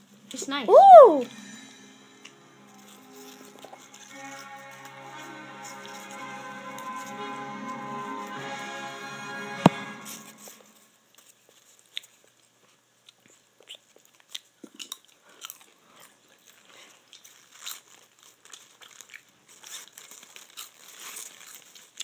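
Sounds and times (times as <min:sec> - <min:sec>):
popcorn crunching in metal bowl: 0:16.4 - 0:22.0.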